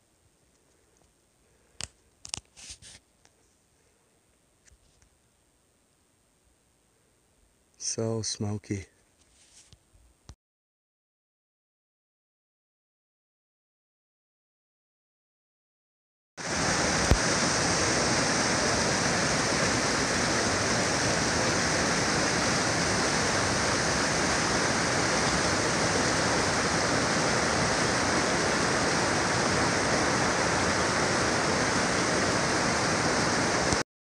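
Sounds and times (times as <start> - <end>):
creek rushing over rocks: 16.4 - 33.8.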